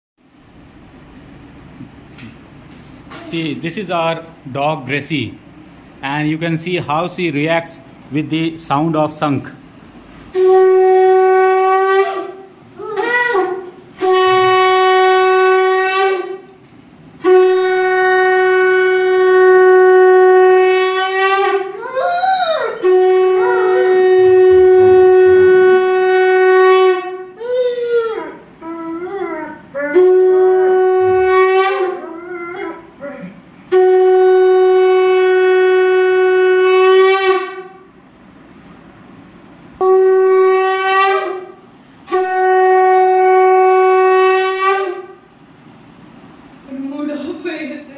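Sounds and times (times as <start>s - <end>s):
conch shell blasts: 10.3s - 16.6s, 17.2s - 21.8s, 22.8s - 27.4s, 30.0s - 32.0s, 33.6s - 37.9s, 39.8s - 45.3s
dog howling: 12.8s - 13.8s, 21.5s - 33.4s.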